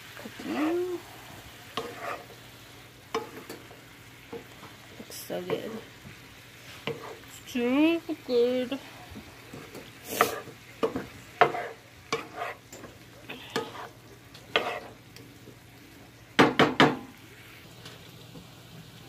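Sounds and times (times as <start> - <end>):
faint sizzle: 0.0 - 19.0
wooden spoon scraping pan: 0.2 - 1.0, 1.8 - 2.4, 6.6 - 7.3, 9.5 - 15.0.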